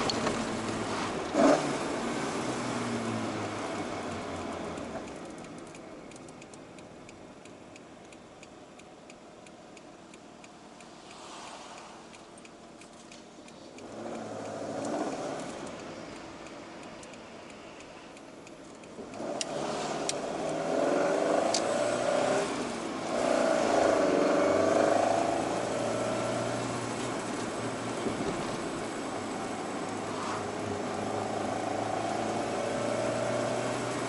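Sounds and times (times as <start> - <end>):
car engine revving: 0.0 - 6.2, 13.7 - 16.5, 18.8 - 34.0
sharp clicks: 4.8 - 20.6.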